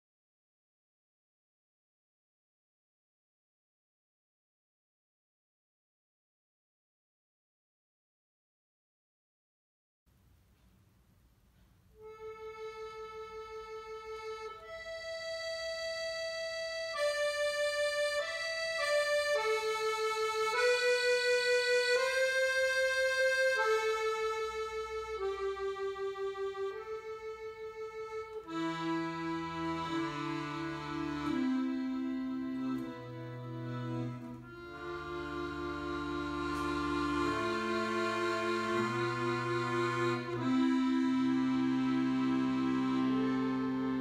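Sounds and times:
accordion melody: 12.0 - 44.0.

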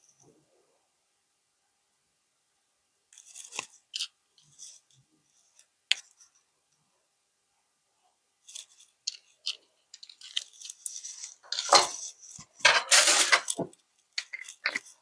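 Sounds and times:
kitchen items clicking and clinking: 8.5 - 15.0.

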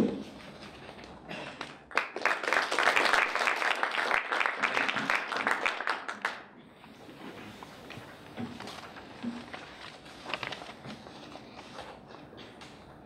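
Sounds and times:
audience applauding: 1.6 - 6.5.

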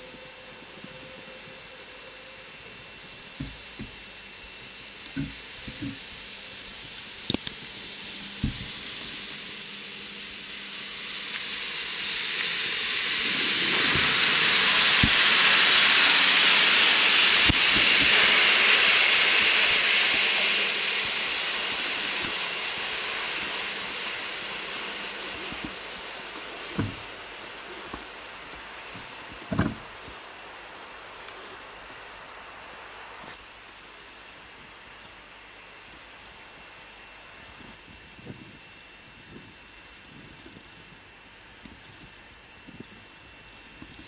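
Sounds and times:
train rolling past: 7.6 - 27.6.

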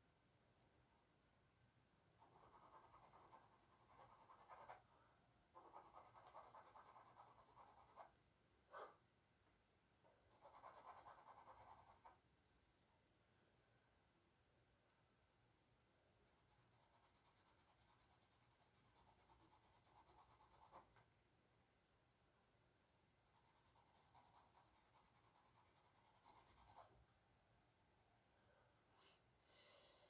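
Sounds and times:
charcoal scratching on canvas: 2.2 - 4.8.

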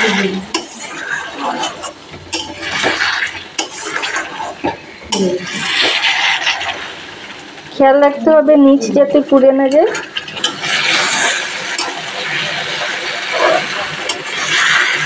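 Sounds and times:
spatula stirring thick gravy: 0.0 - 7.4, 10.4 - 15.0.

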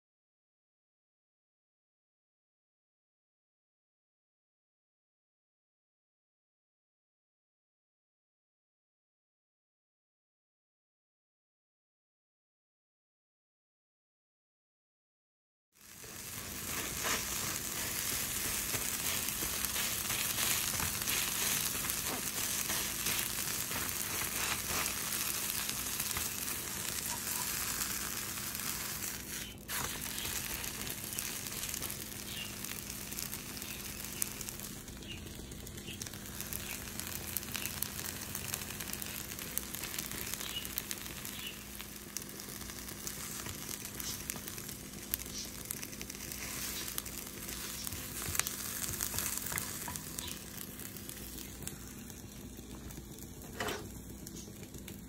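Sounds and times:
eggs sizzling in a frying pan: 15.8 - 55.0.

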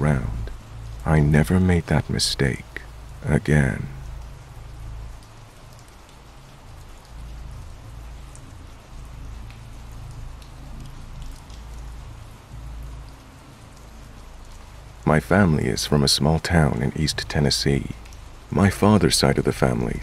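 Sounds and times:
steady rain hiss: 0.0 - 20.0.

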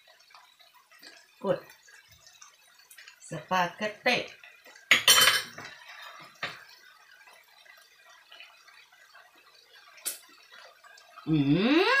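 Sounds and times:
kitchenware clinking and clattering: 4.7 - 6.8.

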